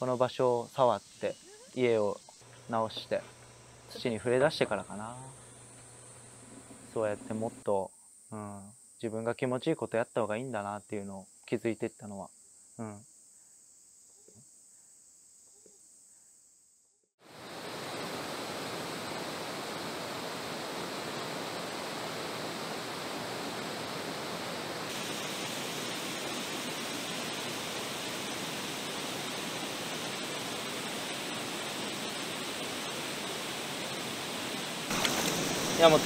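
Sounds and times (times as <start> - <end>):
flowing river water: 17.3 - 36.0.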